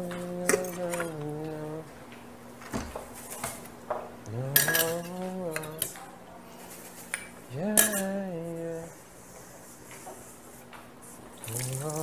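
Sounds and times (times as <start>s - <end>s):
dishes and cutlery clinking: 4.6s - 6.1s, 6.9s - 8.2s.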